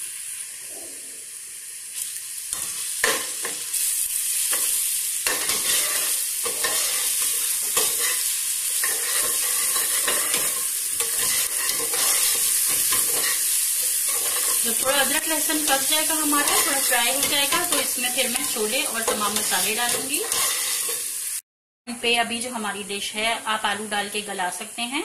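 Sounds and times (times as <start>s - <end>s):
onions sizzling in hot oil: 0.0s - 21.4s, 22.0s - 25.0s
metal spoon scraping a pot: 18.4s - 21.0s.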